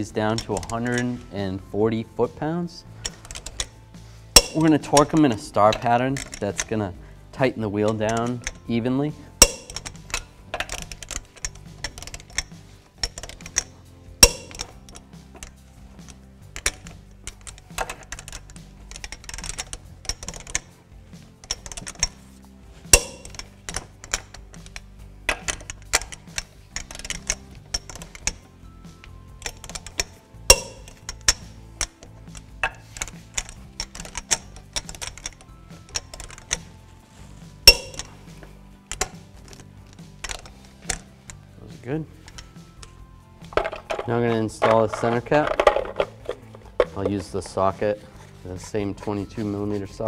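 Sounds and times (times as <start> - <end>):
background music: 0.0 - 50.0
torque wrench ratcheting clicks: 3.0 - 3.7, 9.4 - 20.7, 21.4 - 22.2, 22.9 - 36.7.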